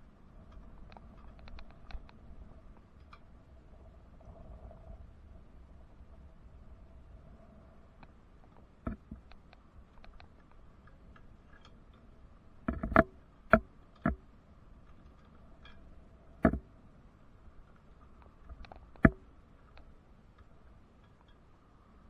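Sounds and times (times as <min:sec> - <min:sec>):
sharp knocks and clicks: 0:08.8 - 0:10.3, 0:12.6 - 0:14.3, 0:16.4 - 0:16.7, 0:18.5 - 0:19.2.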